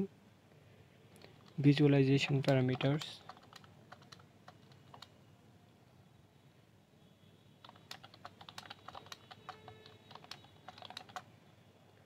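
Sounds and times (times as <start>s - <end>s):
keyboard typing: 1.2s - 5.2s, 7.6s - 11.3s.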